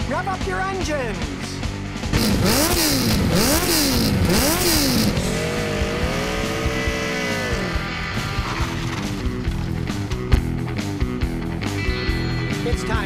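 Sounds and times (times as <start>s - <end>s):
motorcycle engine revving: 1.9s - 11.4s.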